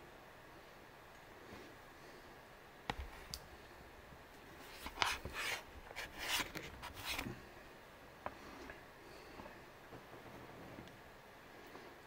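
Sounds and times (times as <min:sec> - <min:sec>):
desk lamp rubbing and scraping: 0:04.6 - 0:07.3.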